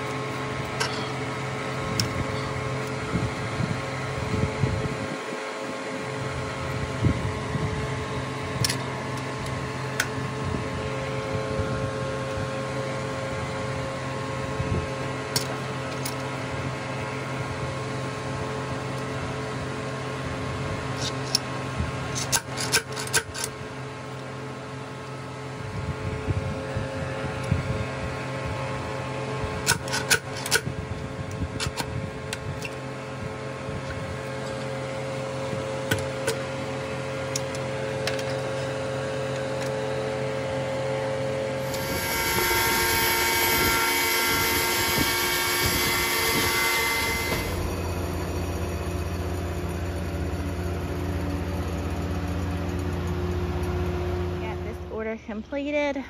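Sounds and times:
sawmill machinery humming: 0.0s - 56.0s
metal bar scraping log bark: 22.1s - 23.5s, 29.6s - 30.7s, 41.6s - 47.8s.

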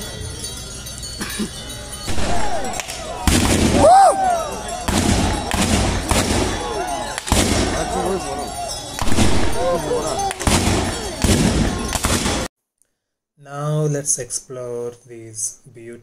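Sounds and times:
black-powder gunshots: 2.1s - 3.9s, 4.8s - 8.2s, 9.0s - 12.5s
whooping war cries: 2.1s - 12.4s.

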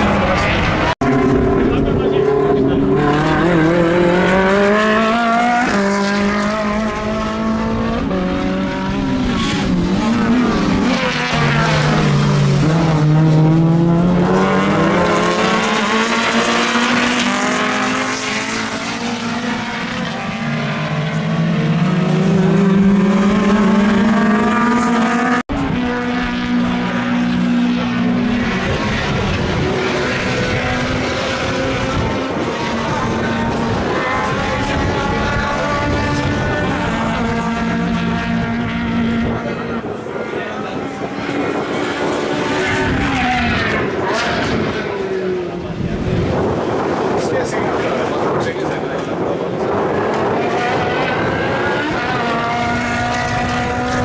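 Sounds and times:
race car engines at high revs: 0.0s - 54.0s.

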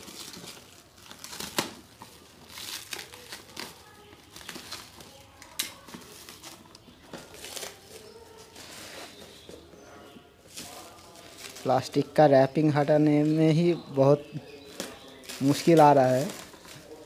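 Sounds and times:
plastic film crinkling: 0.0s - 9.7s, 10.4s - 17.0s.

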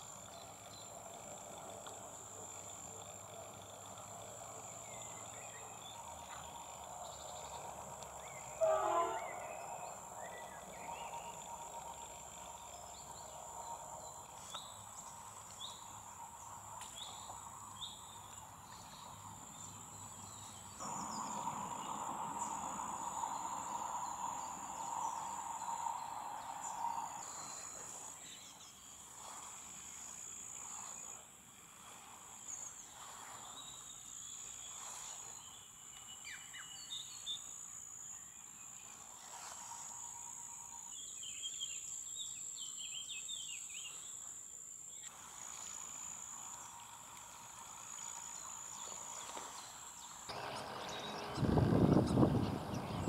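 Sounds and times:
steady high-pitched whine: 0.0s - 42.6s, 45.1s - 53.0s
frogs calling: 20.8s - 28.1s.

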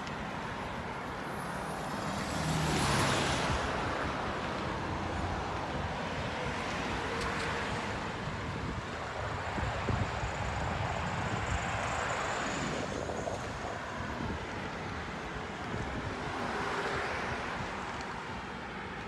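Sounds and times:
road traffic passing: 0.0s - 19.0s
gusty wind on microphone: 7.6s - 17.9s.

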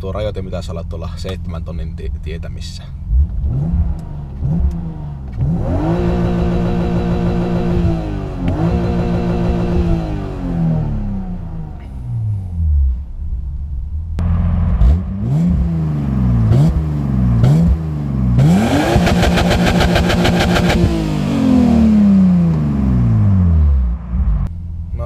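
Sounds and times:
car engine revving: 3.0s - 24.9s
engine stuttering on rev limiter: 18.4s - 21.6s.

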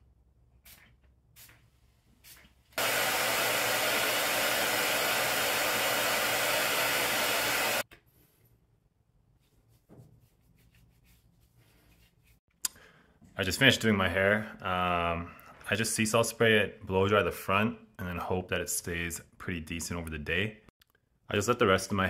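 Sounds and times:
hair dryer running: 2.8s - 7.9s.

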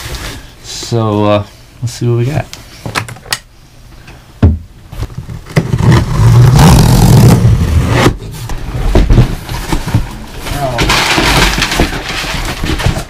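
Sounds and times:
thump: 4.4s - 4.7s.

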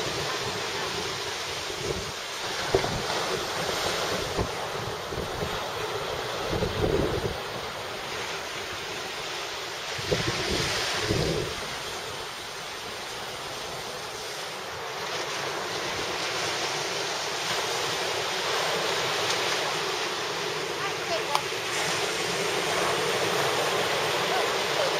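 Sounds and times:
wind buffeting microphone: 0.0s - 7.8s, 9.9s - 12.2s
surf breaking on shore: 0.0s - 24.9s.

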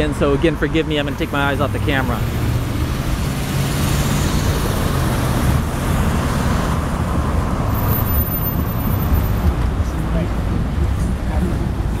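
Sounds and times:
low engine and tyre rumble: 0.0s - 12.0s
vehicles driving past: 0.0s - 12.0s.

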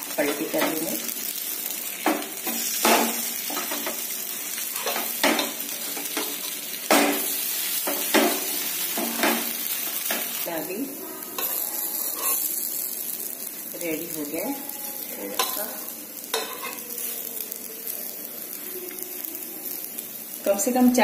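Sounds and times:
flatbread sizzling in oil: 0.0s - 21.0s
metal spatula scraping and clacking: 11.4s - 12.5s, 16.3s - 16.8s.

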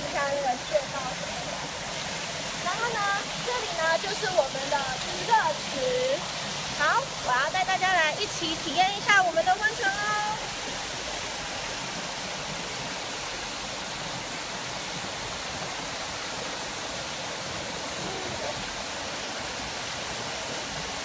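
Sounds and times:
water rushing from rock cascade: 0.0s - 21.0s.

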